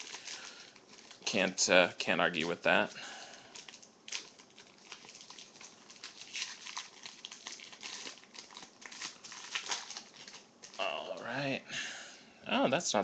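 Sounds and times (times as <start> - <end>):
foil wrapper crinkling: 0.0 - 1.6, 2.3 - 11.2.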